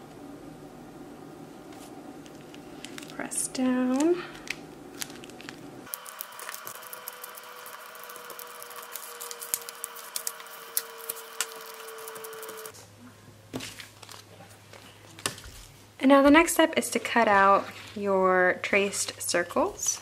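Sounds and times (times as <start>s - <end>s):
steady background hum: 0.0s - 20.0s
plastic contact paper crackling: 1.8s - 12.7s, 13.6s - 15.7s.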